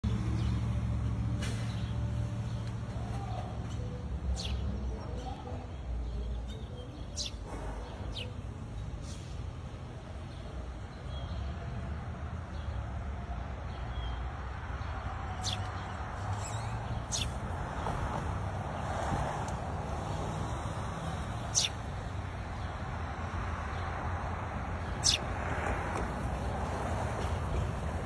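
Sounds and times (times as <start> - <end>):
low traffic rumble: 0.0 - 28.0
bird chirps: 6.3 - 8.4, 15.3 - 17.4, 21.4 - 21.9, 24.8 - 25.3.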